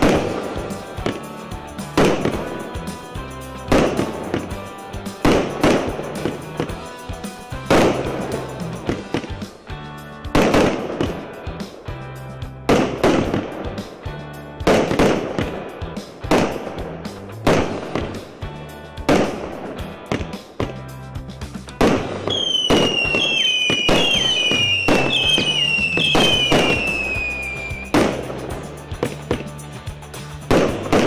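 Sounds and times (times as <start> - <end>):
whistling fireworks falling in pitch: 0.0 - 9.5, 10.2 - 11.7, 12.7 - 13.9, 21.8 - 29.6
fireworks bangs: 0.0 - 9.6, 10.3 - 11.8, 12.7 - 20.8, 21.8 - 29.5, 30.5 - 31.0.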